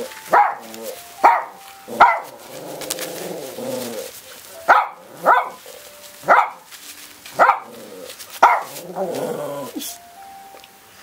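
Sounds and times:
dog barking: 0.3s - 2.3s, 4.7s - 5.6s, 6.2s - 6.7s, 7.4s - 7.8s, 8.4s - 8.8s
dog whining grumble: 2.4s - 4.1s, 7.7s - 10.0s.

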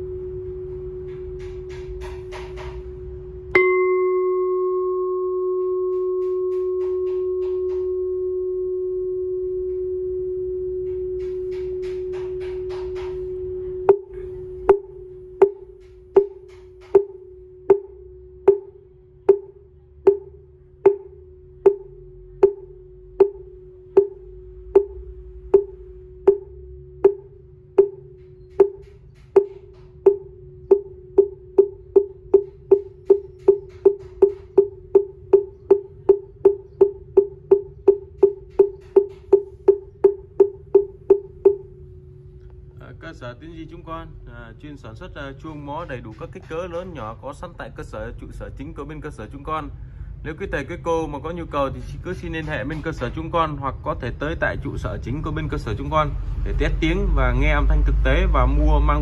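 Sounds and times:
bowl-bell ringing: 3.0s - 42.0s
wooden fish knocked: 28.6s - 41.6s.

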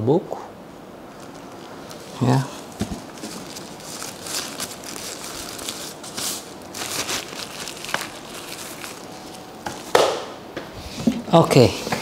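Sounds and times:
paper and packaging crinkling: 1.1s - 9.9s.

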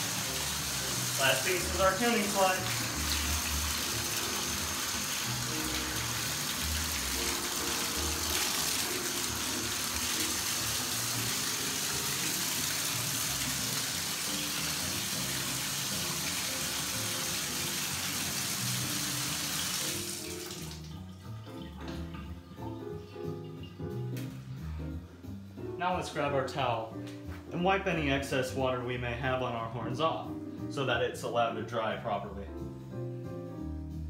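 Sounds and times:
faucet water running: 0.0s - 24.6s.

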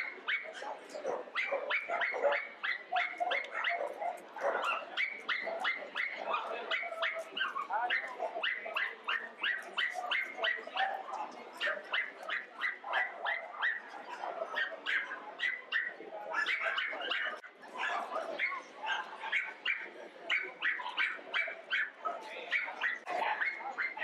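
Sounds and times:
dogs barking: 0.0s - 24.0s.

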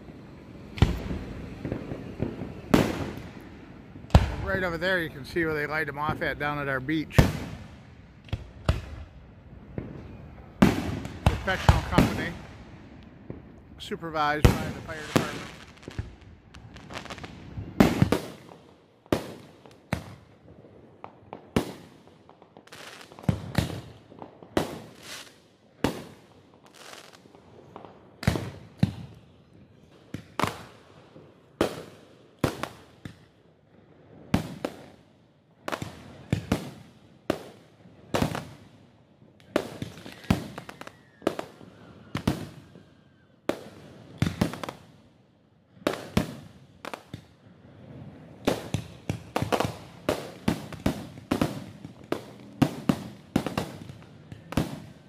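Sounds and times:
firework shells bursting: 0.0s - 18.6s, 39.4s - 41.6s.

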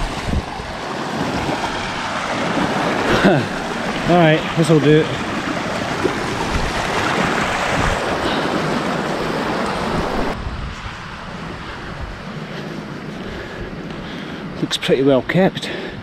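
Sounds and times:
stream rushing over rocks: 0.0s - 10.4s
wind buffeting microphone: 0.0s - 14.8s.

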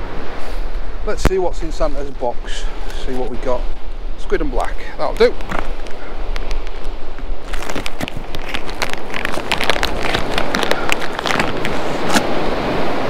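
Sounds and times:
plastic rustling: 5.4s - 12.3s.

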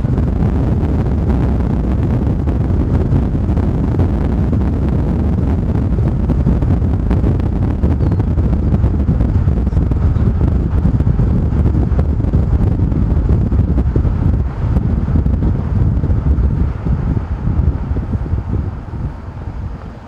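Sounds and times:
vehicle road noise: 0.0s - 20.0s
wind buffeting microphone: 0.0s - 20.0s.

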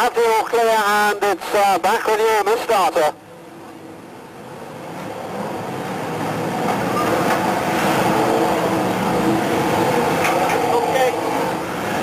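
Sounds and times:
race car engines revving: 4.7s - 12.0s.

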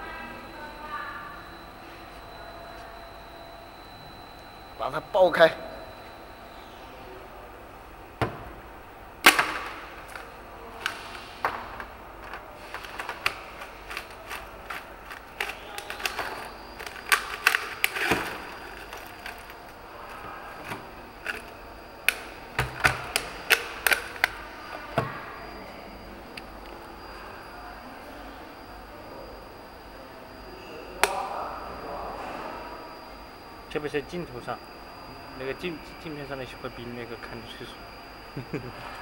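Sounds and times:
ice chunks clattering: 12.2s - 21.5s
ice and plastic cracking: 12.2s - 24.4s.

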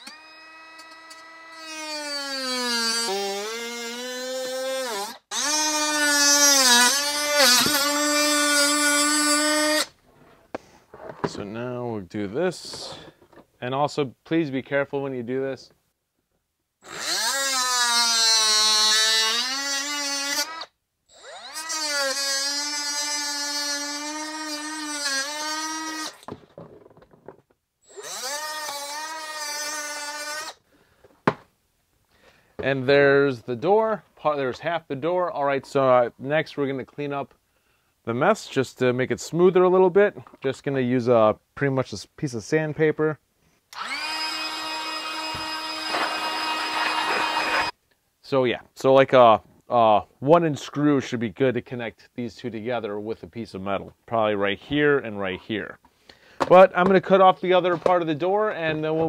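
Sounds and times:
cut-off tool whining: 0.0s - 9.9s, 16.8s - 26.4s, 27.8s - 30.6s, 43.7s - 47.8s.

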